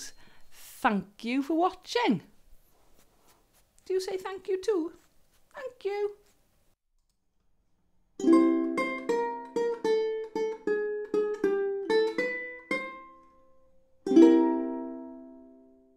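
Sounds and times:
ukulele tune: 8.2 - 15.9.

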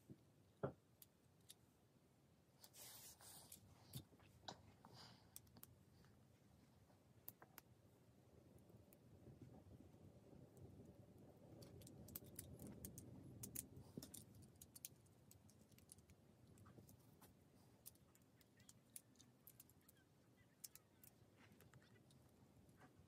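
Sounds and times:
plastic pieces clicking and rattling: 11.6 - 16.7, 17.8 - 22.2.

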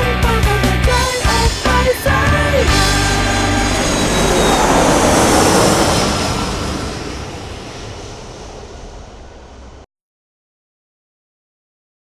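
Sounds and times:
jet airliner flyby: 0.9 - 9.9.

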